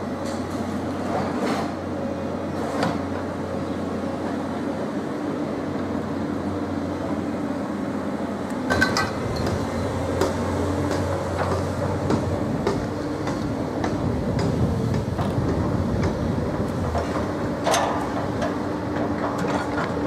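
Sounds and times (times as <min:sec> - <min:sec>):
large machine rumbling: 0:08.6 - 0:20.0.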